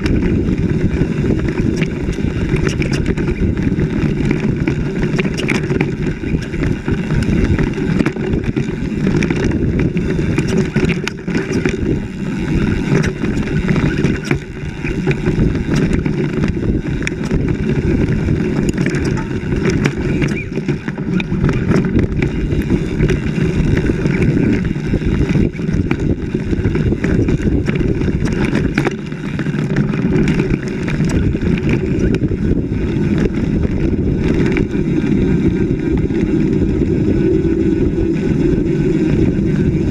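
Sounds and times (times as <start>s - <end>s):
vehicle rumbling on rough track: 0.0s - 39.9s
wind buffeting camera: 0.0s - 39.9s.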